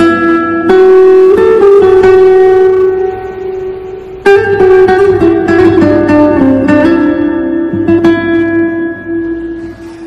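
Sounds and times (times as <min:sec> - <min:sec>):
plucked guitar music: 0:00.0 - 0:10.0.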